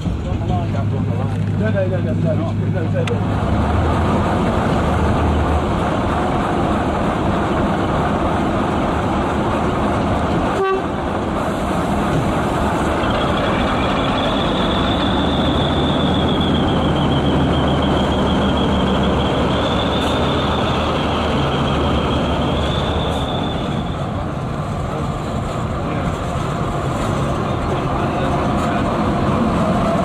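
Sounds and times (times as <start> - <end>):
diesel locomotive engine running: 0.0 - 30.0
high wavering squeal: 12.9 - 24.2.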